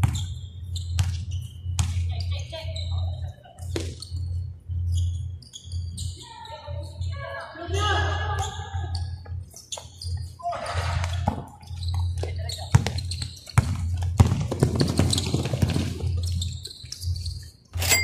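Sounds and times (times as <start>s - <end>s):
basketball bouncing on court: 0.0s - 2.5s, 10.8s - 16.6s.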